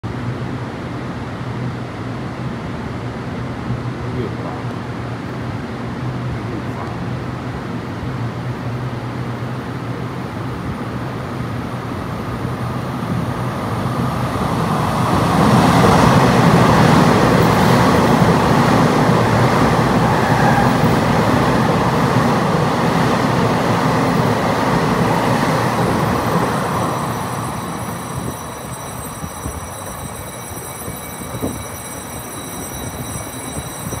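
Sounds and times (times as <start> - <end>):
electric train rumbling past: 0.1 - 34.0
thin high whine: 25.8 - 34.0.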